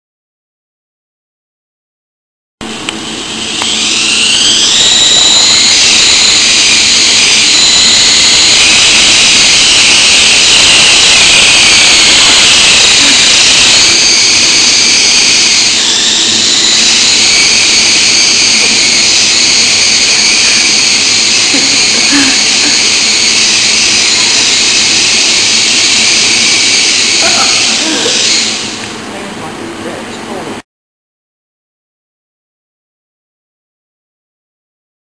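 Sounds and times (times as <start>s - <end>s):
toy helicopter rotors whining: 2.9s - 29.0s.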